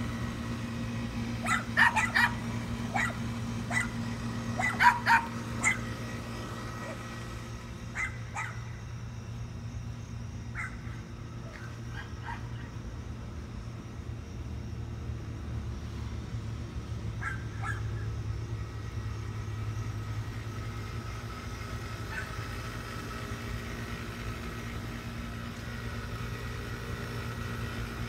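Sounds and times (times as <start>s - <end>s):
dog barking: 1.4s - 4.0s, 4.6s - 5.9s, 7.9s - 8.7s, 10.6s - 12.7s, 17.2s - 18.0s, 22.1s - 22.4s.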